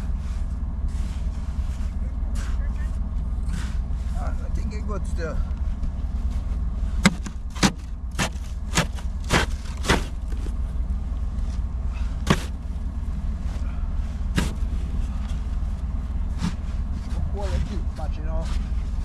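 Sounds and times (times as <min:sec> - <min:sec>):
steady low rumble: 0:00.0 - 0:19.0
snow shovel scraping snow and ice: 0:00.1 - 0:02.9, 0:03.5 - 0:04.8, 0:06.3 - 0:10.6, 0:12.0 - 0:12.6.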